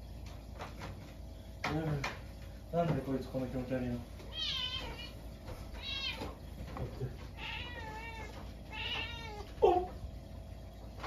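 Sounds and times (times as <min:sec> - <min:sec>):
cat meowing: 0:04.3 - 0:05.2, 0:05.8 - 0:06.4, 0:07.3 - 0:09.9.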